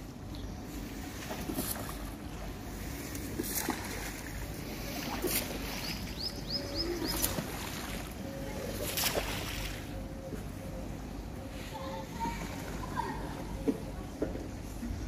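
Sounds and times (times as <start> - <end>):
low outdoor rumble and hiss: 0.0 - 15.0.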